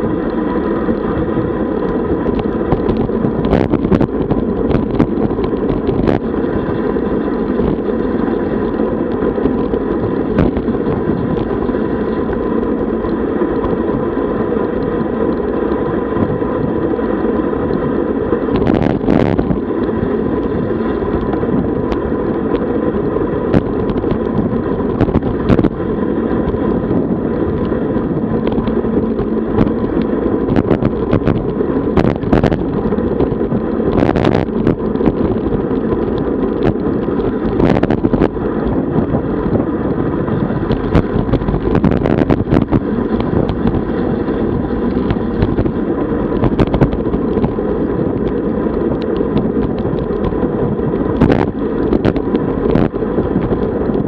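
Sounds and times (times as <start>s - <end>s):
tyre and road noise: 0.0s - 54.0s
wind rushing over microphone: 0.0s - 54.0s.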